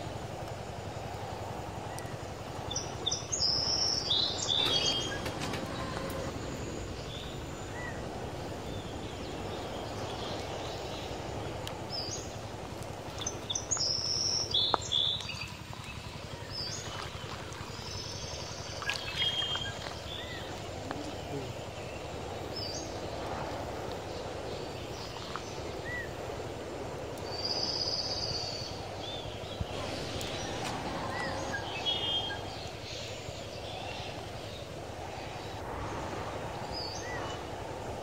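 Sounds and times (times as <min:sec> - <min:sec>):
outdoor background noise: 0:00.0 - 0:38.0
bird chirping: 0:02.7 - 0:12.4, 0:27.2 - 0:35.6.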